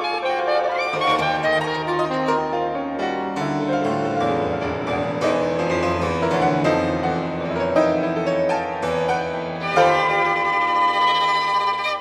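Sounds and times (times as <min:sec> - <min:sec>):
violin: 0:00.0 - 0:02.6, 0:09.5 - 0:12.0
soprano saxophone: 0:00.0 - 0:03.1, 0:09.6 - 0:12.0
piano notes and chords: 0:00.0 - 0:12.0.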